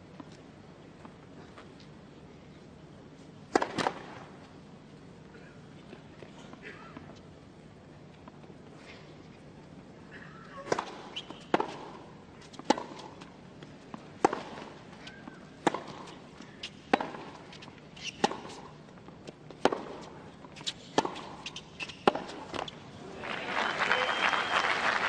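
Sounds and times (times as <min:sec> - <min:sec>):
racquets hitting tennis ball: 0:03.5 - 0:04.4, 0:10.6 - 0:22.8
tennis ball bouncing: 0:03.5 - 0:04.4, 0:10.6 - 0:22.8
crowd applause: 0:23.1 - 0:25.0.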